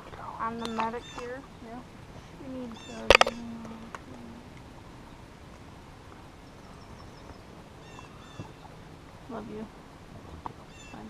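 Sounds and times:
steady low hiss: 0.0s - 11.0s.

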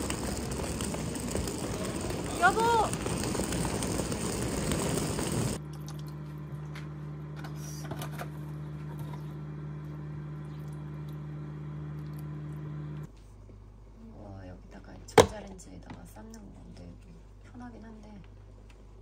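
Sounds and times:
suitcase wheels rolling on stone: 0.0s - 5.6s.

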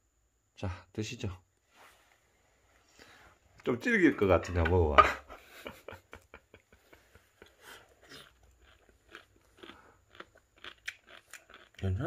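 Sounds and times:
person chewing crunchy food: 7.5s - 12.0s.

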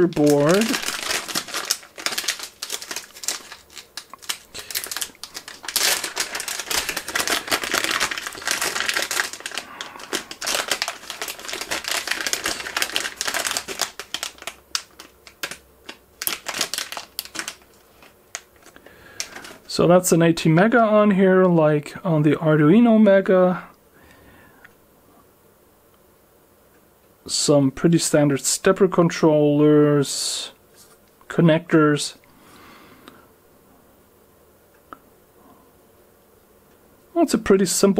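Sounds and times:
plastic bag crinkling: 0.0s - 19.7s.

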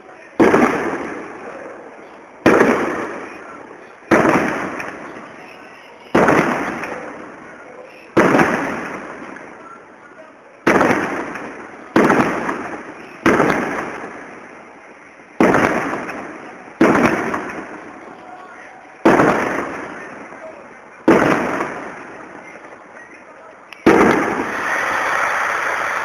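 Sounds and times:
firework shells bursting: 2.4s - 9.6s, 10.6s - 18.2s, 19.0s - 20.4s, 21.0s - 22.8s, 23.7s - 26.0s.

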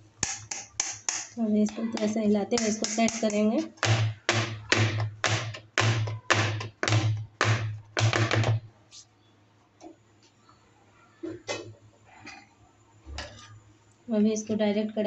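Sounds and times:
metal cake tin knocking on board: 2.0s - 8.6s.

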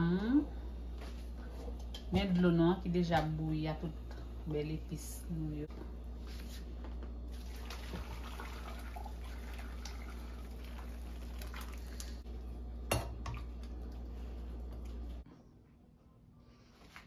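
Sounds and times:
liquid sloshing: 7.3s - 12.2s.

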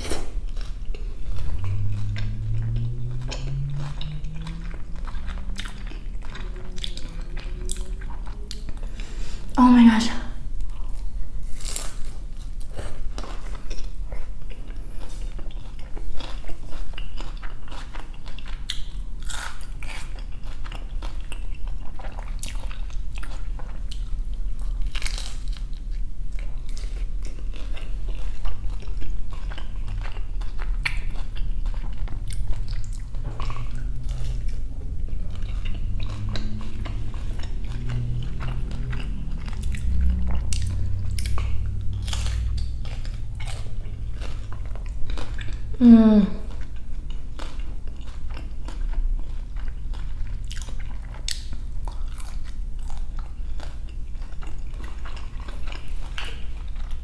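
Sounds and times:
chewing: 0.0s - 9.6s, 10.5s - 57.0s
crunching bites of crispy tacos: 10.7s - 45.7s, 46.4s - 57.0s.

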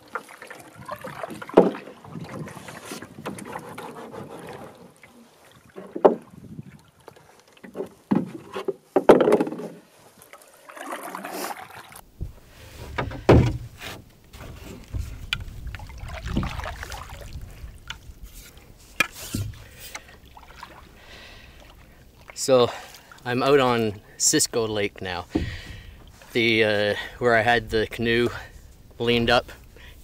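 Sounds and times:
paddle strokes swishing through water: 0.0s - 27.2s
sharp wooden knocks: 1.4s - 1.8s, 7.7s - 9.8s, 13.0s - 14.0s, 25.3s - 25.9s.

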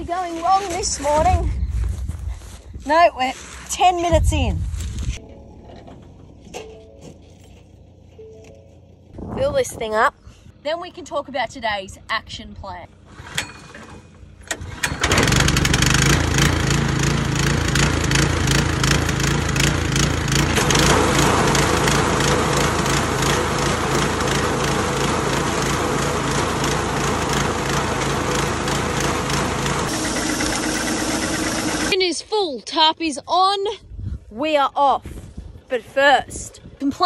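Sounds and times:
small petrol engine running: 14.2s - 32.0s.

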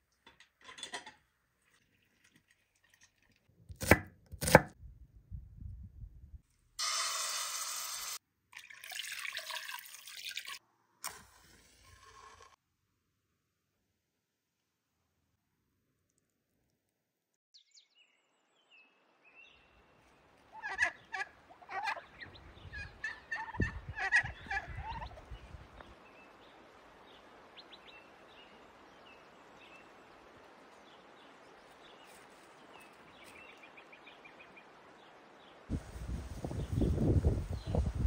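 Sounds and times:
outdoor hiss: 6.8s - 8.2s, 25.7s - 38.0s
farmyard fowl calling: 20.5s - 25.2s.

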